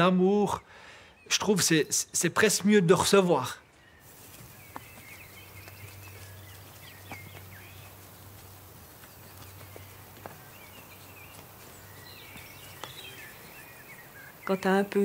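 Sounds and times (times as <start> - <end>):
small birds chirping: 0.0 - 15.0
horses walking on grass: 4.0 - 15.0
hoof knocks: 4.1 - 14.5.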